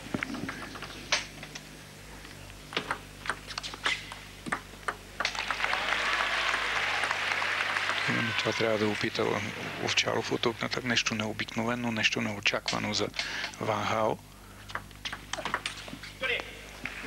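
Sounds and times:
table tennis ball clicking: 2.8s - 5.4s
crowd applause: 5.2s - 10.0s.

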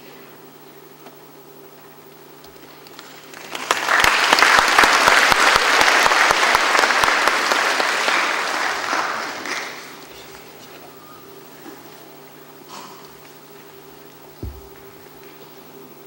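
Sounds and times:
audience clapping: 2.8s - 10.6s.

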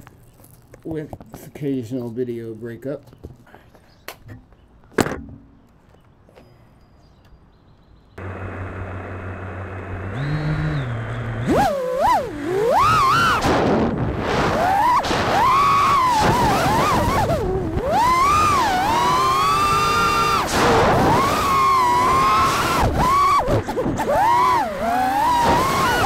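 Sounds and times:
drone motors whining: 8.2s - 26.0s.

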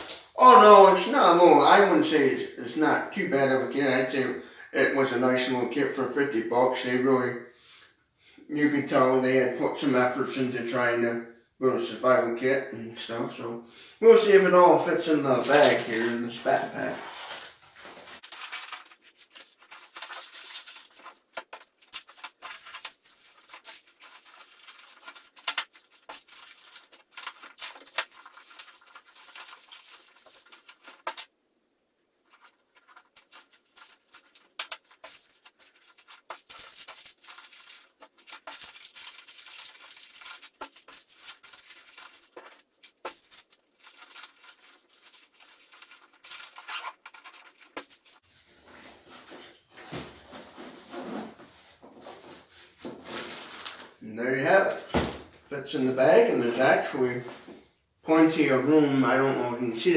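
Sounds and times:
plastic packaging rustling: 17.2s - 31.3s, 32.2s - 48.8s, 52.8s - 54.0s.

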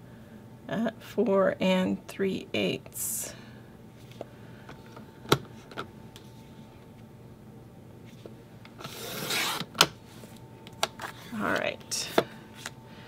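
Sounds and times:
paper trimmer blade scraping: 8.8s - 9.7s.

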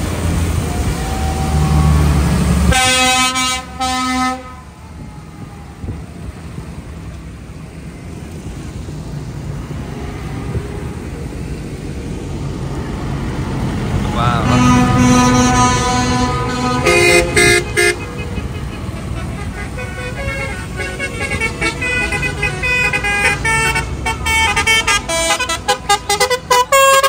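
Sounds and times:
tractor engine rumble: 0.0s - 27.0s
vehicle horn blasts: 2.7s - 4.7s, 14.2s - 27.0s.

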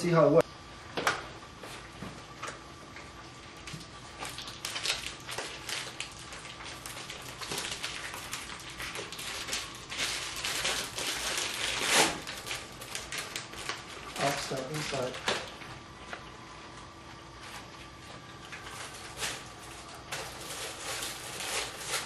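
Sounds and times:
plastic bag crinkling: 3.6s - 15.6s, 17.9s - 22.0s.

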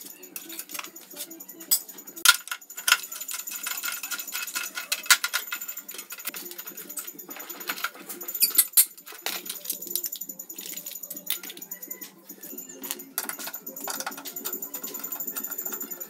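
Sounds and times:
hand tools on rusty metal: 2.3s - 9.5s.

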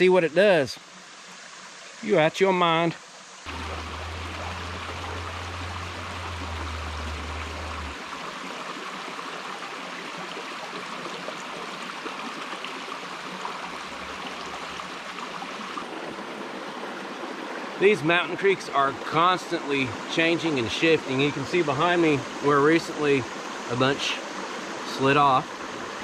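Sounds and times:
creek running over rocks: 0.0s - 26.0s
low steady hum: 3.5s - 8.4s.

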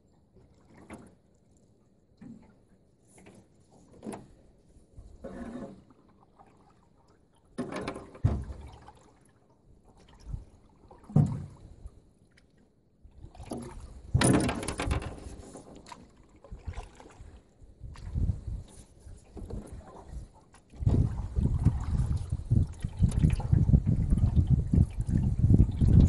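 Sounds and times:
paddle splashing water: 0.1s - 26.0s.

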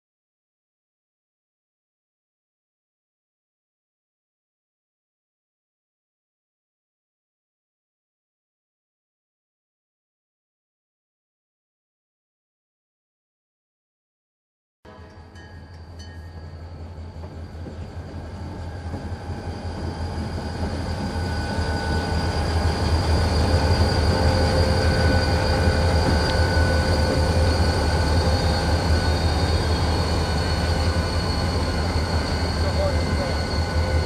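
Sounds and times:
diesel locomotive engine rumble: 14.9s - 34.0s
thin steady whining tones: 14.9s - 34.0s.

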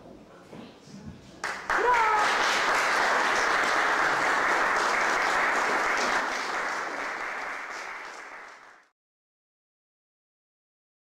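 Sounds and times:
audience applauding: 1.4s - 8.9s.

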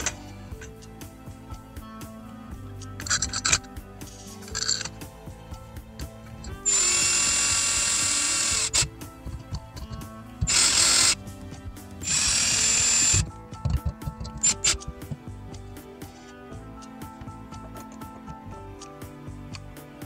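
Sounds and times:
cordless drill running: 6.6s - 9.0s, 9.8s - 11.3s, 12.0s - 13.3s.

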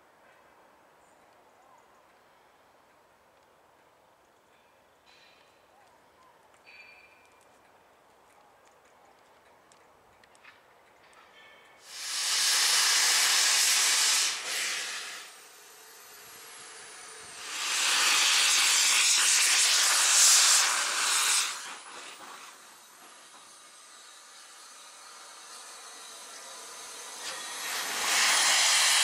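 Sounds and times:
steam locomotive hissing: 11.8s - 29.0s.

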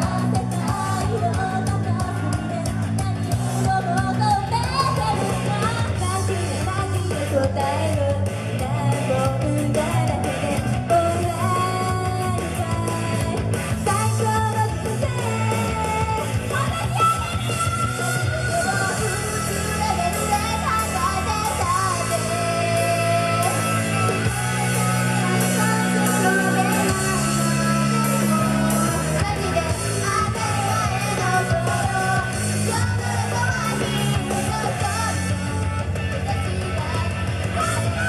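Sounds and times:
bass guitar line: 0.0s - 38.0s
electric guitar: 0.0s - 38.0s
rock backing music: 0.0s - 38.0s
women singing pop song: 0.0s - 38.0s.

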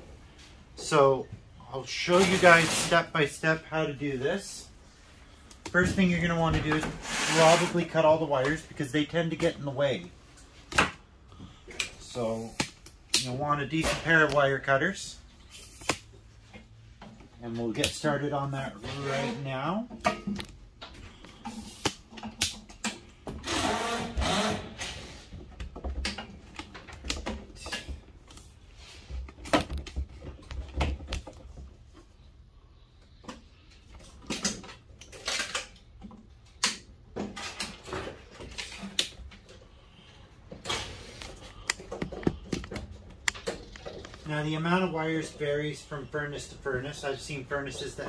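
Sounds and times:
wires rustling and scraping: 1.8s - 12.7s, 37.2s - 48.0s.

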